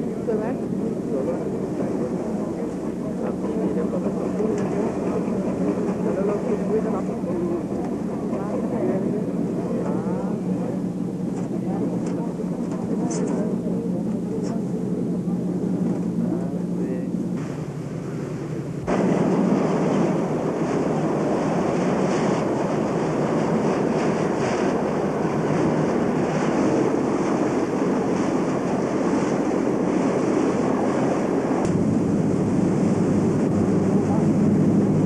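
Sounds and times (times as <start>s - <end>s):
wind on microphone: 0.0s - 35.0s
rushing water: 18.9s - 35.0s.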